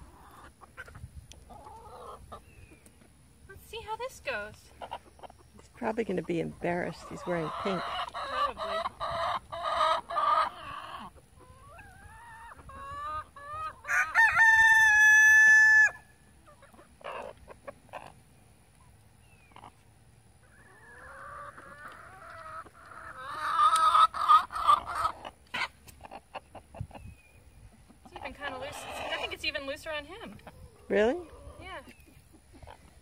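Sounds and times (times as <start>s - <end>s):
chickens squawking and clucking: 0.0s - 33.0s
rooster crowing: 13.8s - 16.0s.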